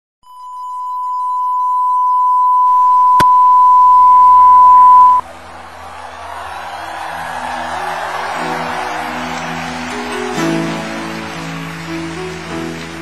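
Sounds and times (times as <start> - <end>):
steady test tone beep: 0.2 - 5.2
low hum: 2.7 - 5.2.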